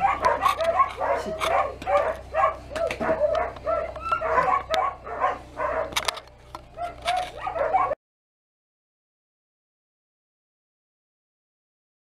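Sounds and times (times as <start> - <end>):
small dogs barking and yipping: 0.0 - 8.0.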